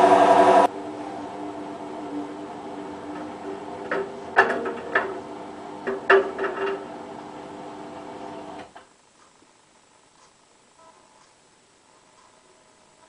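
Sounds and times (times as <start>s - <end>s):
washing machine motor hum: 0.0s - 8.9s.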